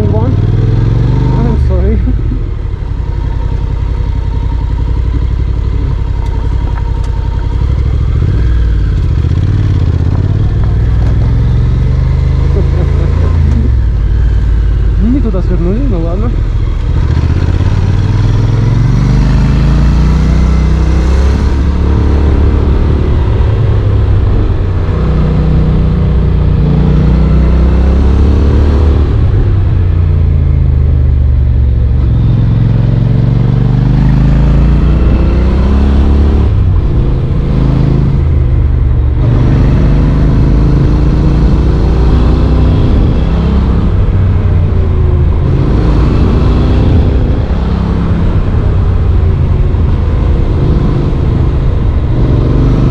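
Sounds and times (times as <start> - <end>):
motorcycle engine accelerating: 0.0 - 52.9.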